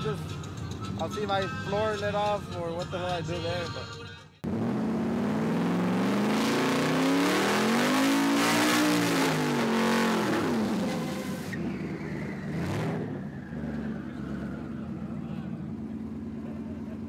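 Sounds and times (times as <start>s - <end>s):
truck engine at full throttle: 4.4s - 17.0s.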